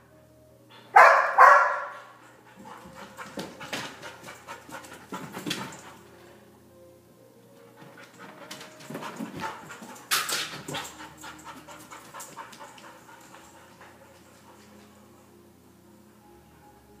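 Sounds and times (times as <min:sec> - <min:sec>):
dog panting: 0:01.9 - 0:06.2, 0:07.7 - 0:15.1
dog nails clicking on hardwood floor: 0:02.6 - 0:06.0, 0:07.8 - 0:15.0.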